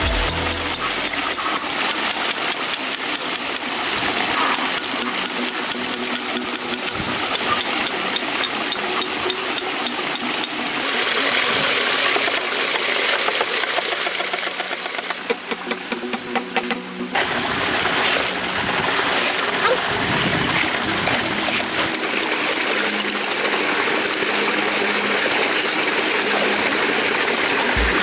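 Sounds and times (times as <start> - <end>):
concrete vibrator motor rattling: 0.0 - 28.0.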